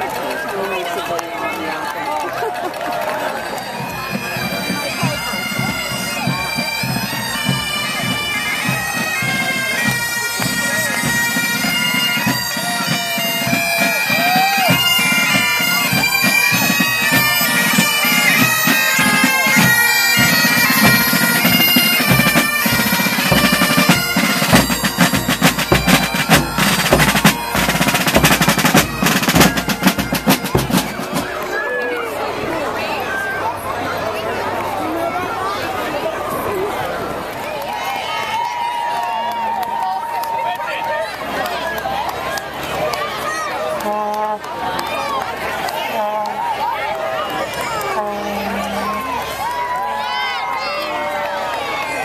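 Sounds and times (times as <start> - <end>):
bagpipes playing marching tune: 0.6 - 31.6, 43.2 - 52.0
drums beating: 3.0 - 31.7, 47.5 - 50.3.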